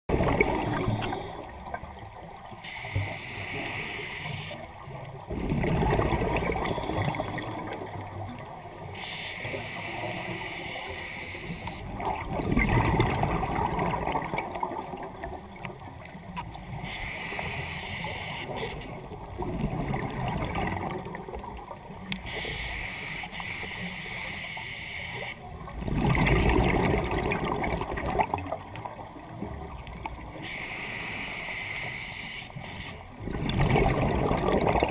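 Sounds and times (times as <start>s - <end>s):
exhaled bubbles gurgling: 0.1s - 23.1s, 25.2s - 31.1s, 33.0s - 34.9s
regulator inhale hiss: 0.5s - 1.7s, 2.5s - 4.8s, 6.6s - 7.8s, 8.8s - 13.2s, 16.7s - 19.0s, 22.0s - 25.4s, 30.3s - 33.2s.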